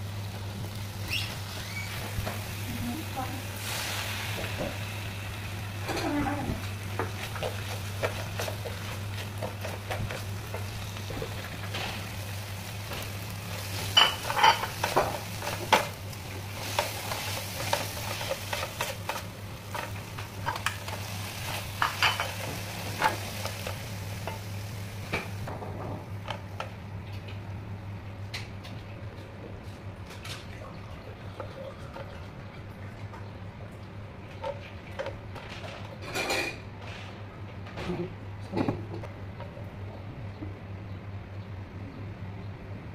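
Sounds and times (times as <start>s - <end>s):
food sizzling in a frying pan: 0.0s - 26.6s.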